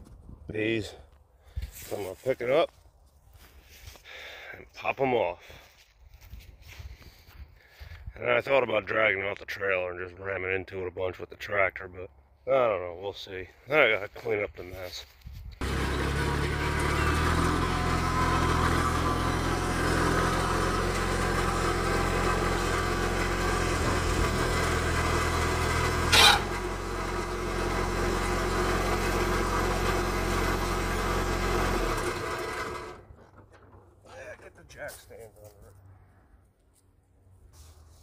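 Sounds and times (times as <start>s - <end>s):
tractor engine running: 15.6s - 34.8s.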